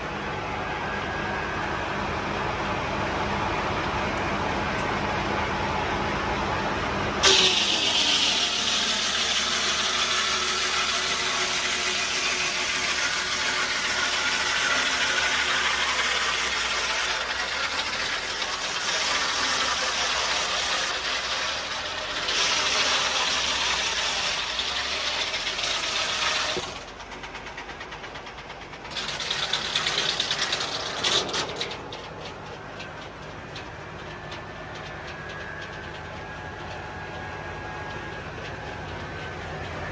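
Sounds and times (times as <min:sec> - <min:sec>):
tractor engine under load: 0:00.0 - 0:39.9
circular saw blade cutting log: 0:07.2 - 0:28.1, 0:28.8 - 0:31.9.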